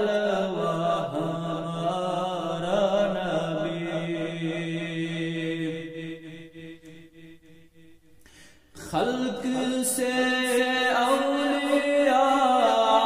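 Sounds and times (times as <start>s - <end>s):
man chanting: 0.0s - 7.4s, 8.8s - 13.0s.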